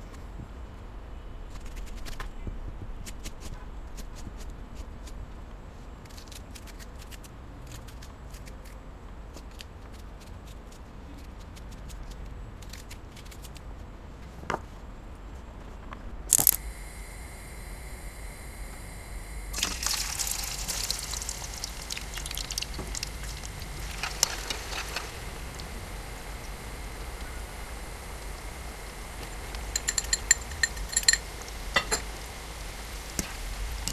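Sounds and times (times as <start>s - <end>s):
fat sizzling in frying pan: 16.3s - 33.9s.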